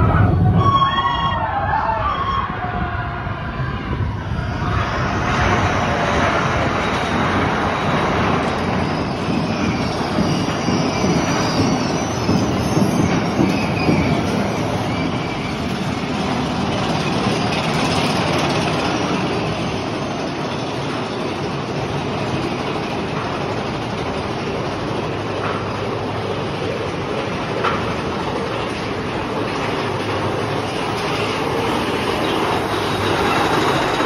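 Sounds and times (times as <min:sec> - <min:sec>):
roller coaster wheels rumbling on rail: 0:00.0 - 0:34.0.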